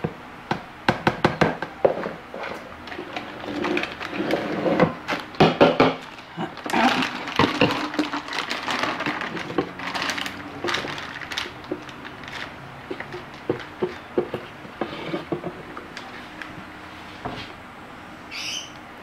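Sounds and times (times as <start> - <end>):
plastic containers knocking on counter: 4.8 - 6.1, 6.7 - 11.9, 12.9 - 14.5
rustling: 6.0 - 17.6.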